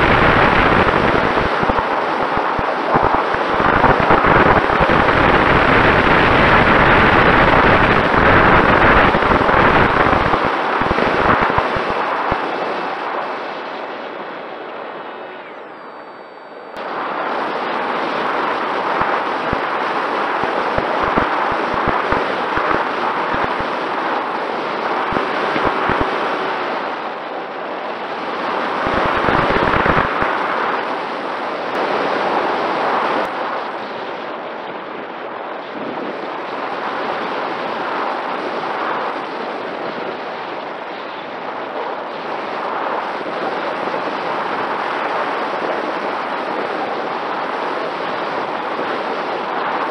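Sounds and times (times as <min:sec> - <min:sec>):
electric motor and propeller hum: 0:00.0 - 0:13.2, 0:18.0 - 0:27.0
wind rushing over microphone: 0:00.0 - 0:49.9.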